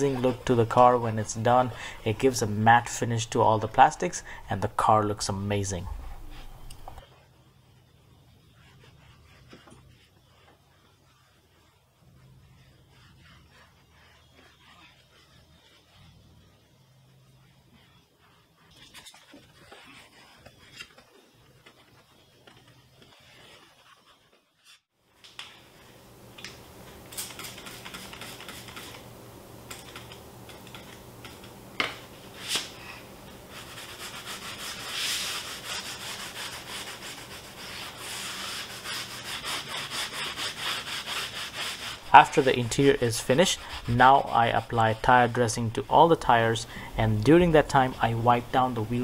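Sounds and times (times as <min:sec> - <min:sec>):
towel wiping plastic: 0:00.0 - 0:02.9, 0:08.4 - 0:24.8, 0:27.2 - 0:29.0, 0:32.3 - 0:49.0
foam pad scrubbing a tire: 0:08.5 - 0:21.4, 0:33.5 - 0:48.2.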